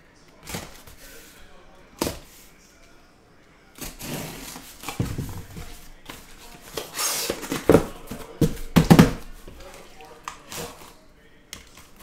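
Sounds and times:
cardboard scraping: 0:03.8 - 0:09.6.

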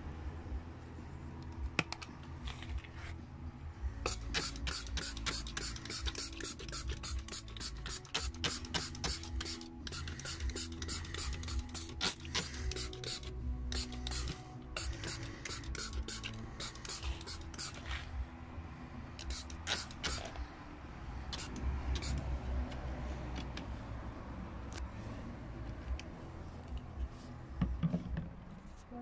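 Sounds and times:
trigger sprayer spritzing: 0:04.1 - 0:17.8, 0:19.2 - 0:20.4, 0:21.3 - 0:22.2.

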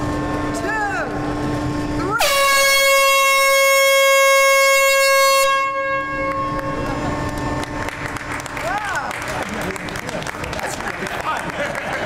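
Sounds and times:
air horn blast: 0:02.0 - 0:07.8.

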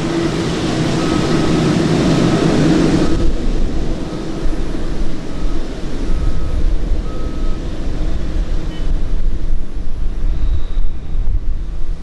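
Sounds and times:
jet engine hiss: 0:00.0 - 0:12.0
jet engines rumbling: 0:00.0 - 0:12.0.

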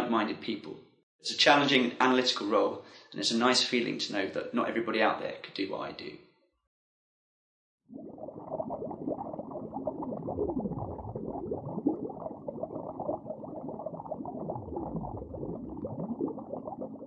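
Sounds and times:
underwater bubbling: 0:07.9 - 0:17.0.

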